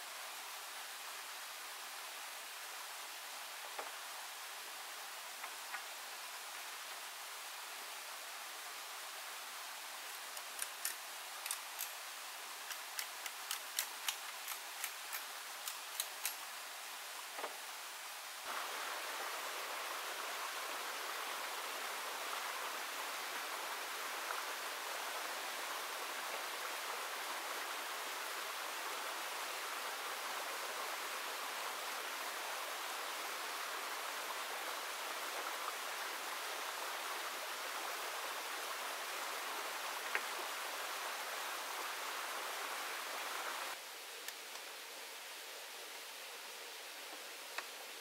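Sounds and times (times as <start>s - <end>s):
running water rushing: 0.0s - 48.0s
sharp irregular clicks: 10.3s - 12.0s, 12.7s - 16.5s.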